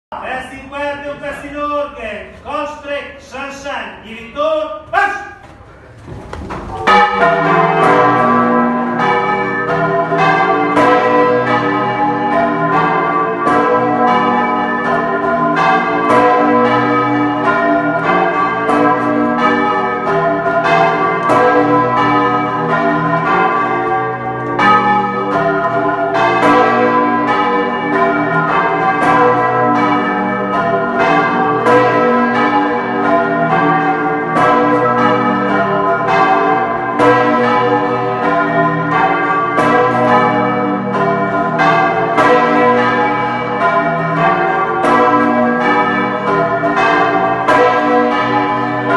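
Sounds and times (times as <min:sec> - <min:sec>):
church bells ringing: 0:00.1 - 0:48.9.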